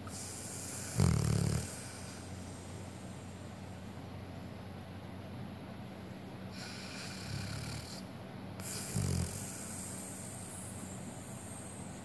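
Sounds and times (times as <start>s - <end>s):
dog snoring: 0.0s - 2.6s, 6.5s - 12.0s.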